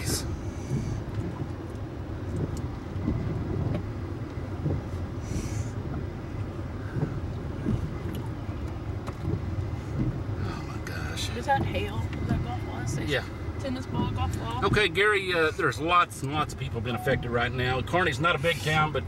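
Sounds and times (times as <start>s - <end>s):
storm wind: 0.0s - 15.0s
hail ticking on a car: 0.0s - 19.0s
rain against a vehicle: 0.0s - 19.0s
windshield wiper swishing: 0.0s - 19.0s.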